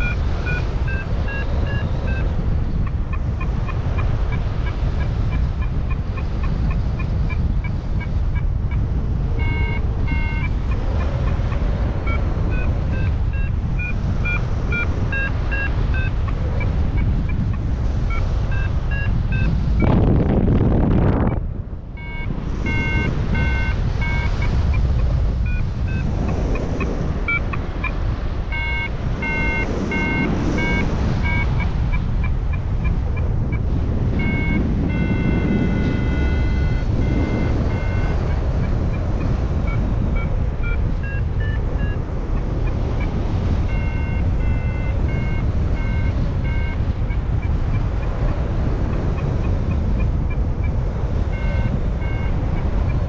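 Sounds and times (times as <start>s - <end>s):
longer electronic tones: 0.0s - 4.8s, 9.3s - 17.4s, 22.0s - 26.1s, 27.3s - 32.9s, 33.5s - 42.0s, 43.6s - 47.5s, 51.3s - 52.6s
short electronic beeps: 0.0s - 20.1s, 22.0s - 53.0s
wind noise on microphone: 0.0s - 53.0s.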